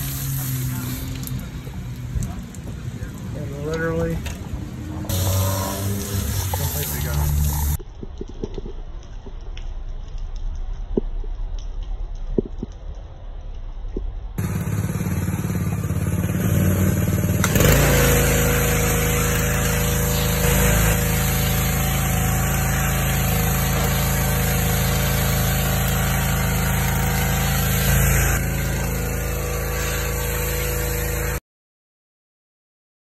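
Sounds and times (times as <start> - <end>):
pressure washer spraying: 0.0 - 7.8, 14.4 - 31.4.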